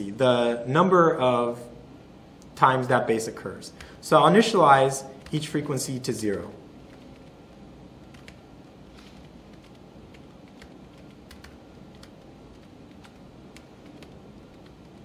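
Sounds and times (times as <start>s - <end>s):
laptop keyboard typing: 6.8s - 15.0s.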